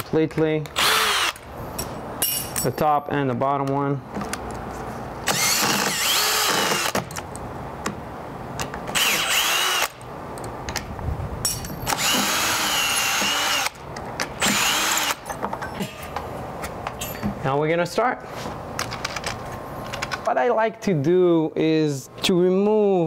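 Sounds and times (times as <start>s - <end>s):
cordless drill motor whirring: 0.8s - 1.4s, 5.3s - 7.0s, 8.9s - 10.0s, 11.9s - 13.8s, 14.4s - 15.2s.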